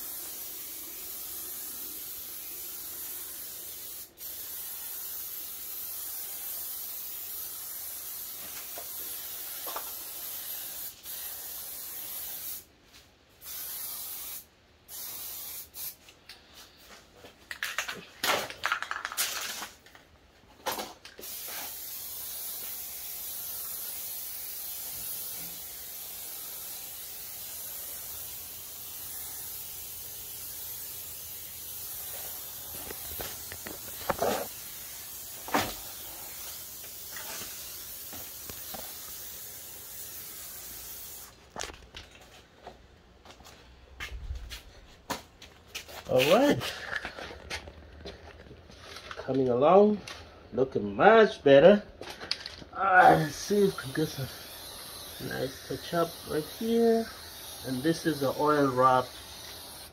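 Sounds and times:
spray paint can hissing: 0.0s - 12.7s, 13.4s - 16.1s, 20.7s - 41.4s, 52.9s - 59.9s.

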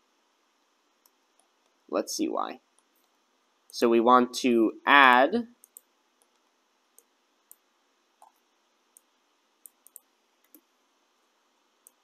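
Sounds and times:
faint computer mouse clicks: 5.6s - 7.6s, 8.2s - 10.7s.

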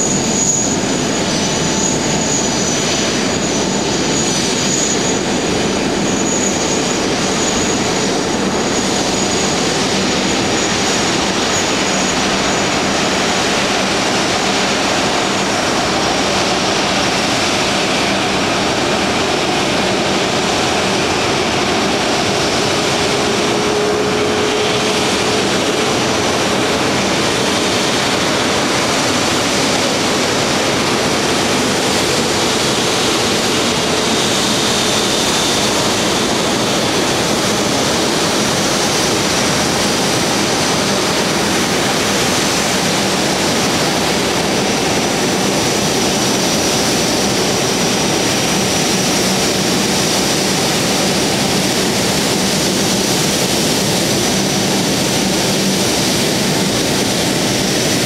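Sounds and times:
jet engines rushing: 0.0s - 58.0s.

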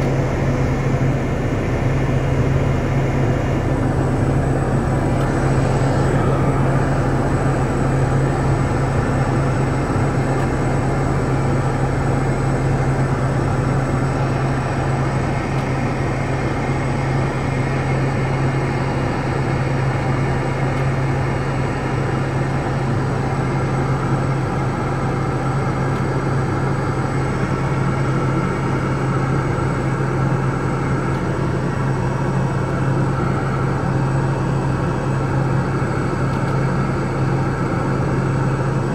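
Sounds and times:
airflow rush: 0.0s - 10.8s
turboprop engine drone: 0.0s - 38.9s.

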